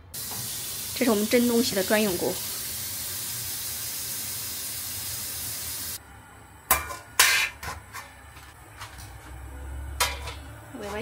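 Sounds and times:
steady hiss: 0.2s - 6.0s
plate and metal pot clanking: 10.0s - 10.4s.

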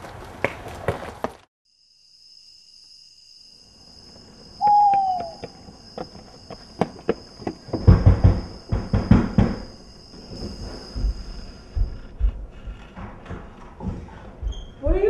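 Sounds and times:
crickets chirping: 1.6s - 15.0s
owl hooting: 4.6s - 5.7s.

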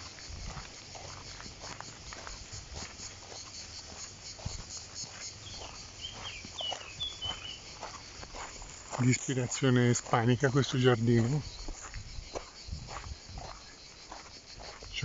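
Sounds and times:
footsteps crunching on gravel: 0.0s - 15.0s
insects chirring: 0.0s - 15.0s
bird chirps: 5.4s - 7.8s.

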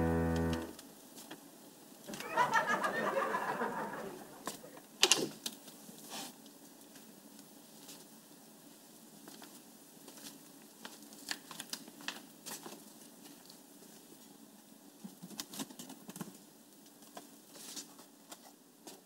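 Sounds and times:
low room hum: 0.0s - 0.8s.

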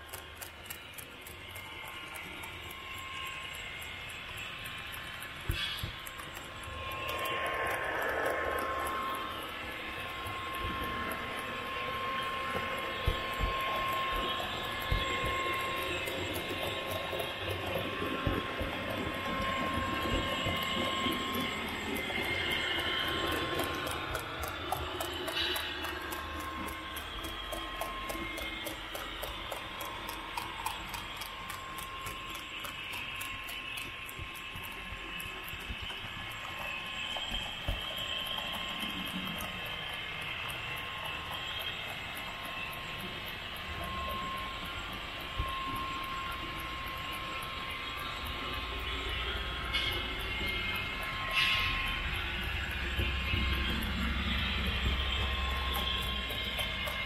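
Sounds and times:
low running hum: 0.0s - 57.0s
model train wheels rolling on rails: 0.0s - 57.0s
thin steady tone: 0.0s - 57.0s
faint regular ticking: 20.5s - 51.2s.

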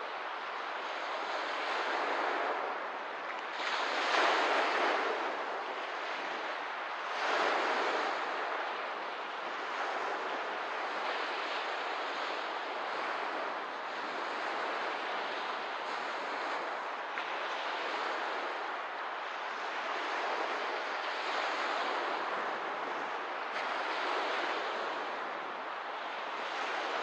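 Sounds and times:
small waves washing onto shore: 0.0s - 27.0s.

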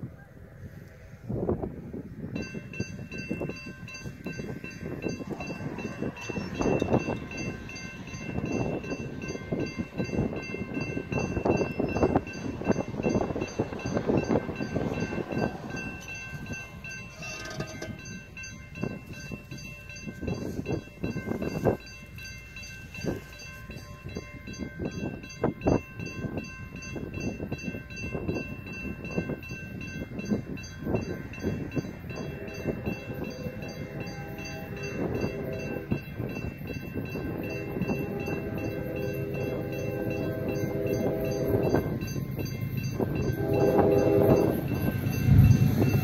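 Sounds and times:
railroad crossing bell ringing: 1.3s - 46.0s
distant locomotive horn blasts: 17.1s - 18.2s, 31.9s - 36.4s, 37.2s - 42.2s, 42.9s - 46.0s.

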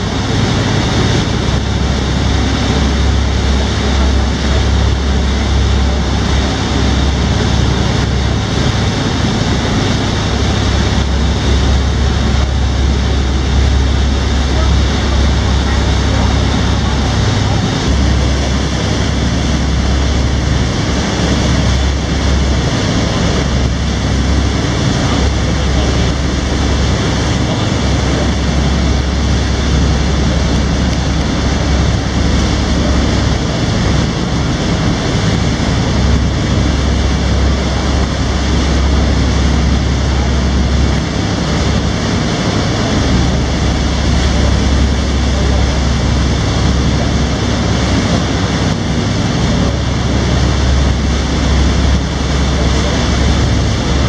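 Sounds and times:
boat engine humming: 0.0s - 54.0s
water rushing from wake: 0.0s - 54.0s
wind: 0.0s - 54.0s.

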